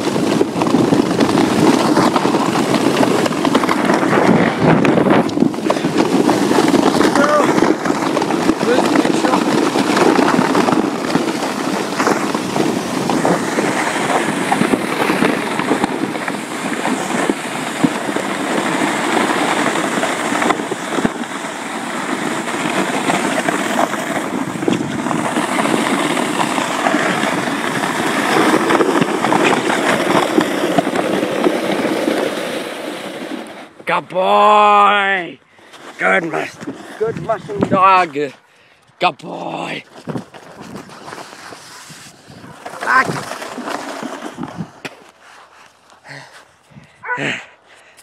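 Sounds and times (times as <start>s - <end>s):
small crackles and clicks: 0.0s - 32.6s
crunch of sled on icy snow: 0.0s - 48.0s.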